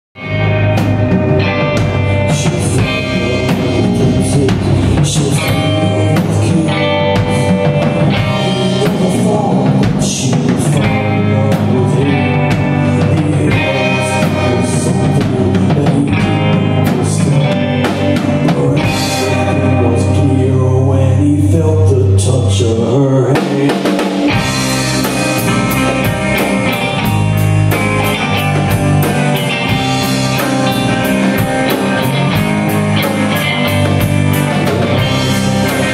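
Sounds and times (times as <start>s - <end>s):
live rock band playing: 0.2s - 35.9s.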